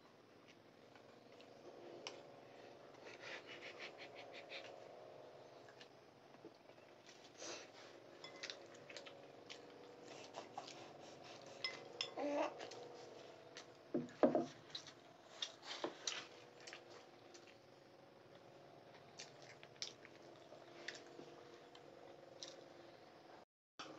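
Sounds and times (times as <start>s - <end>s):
spoon clinking on ceramic bowl: 8.2s - 8.6s.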